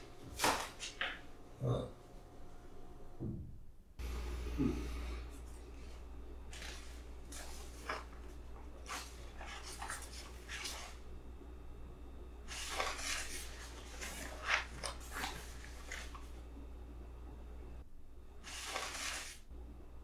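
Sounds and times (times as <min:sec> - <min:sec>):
paper rustling: 0:00.3 - 0:01.2, 0:05.5 - 0:11.1, 0:12.5 - 0:16.4, 0:18.4 - 0:19.5
low hum: 0:01.3 - 0:18.5.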